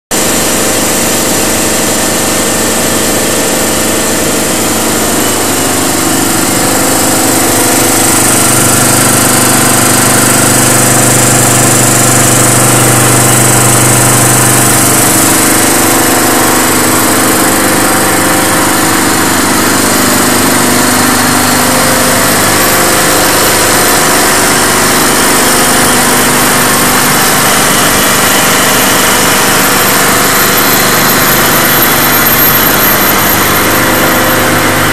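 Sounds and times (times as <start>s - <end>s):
gas booster machine running: 0.1s - 34.9s.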